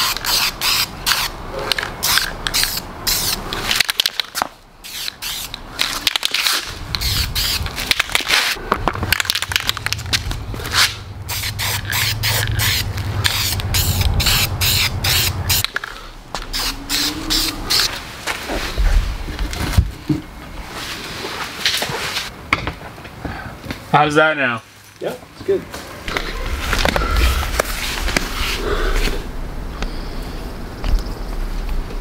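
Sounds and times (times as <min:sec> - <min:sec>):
spray paint can hissing: 0:00.0 - 0:01.3, 0:02.0 - 0:08.6, 0:11.3 - 0:15.8, 0:16.4 - 0:18.0
low steady hum: 0:25.9 - 0:32.0.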